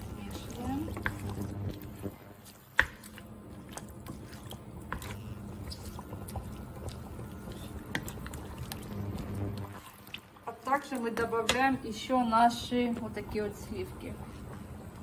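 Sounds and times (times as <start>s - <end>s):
spatula stirring thick sauce: 0.0s - 11.7s.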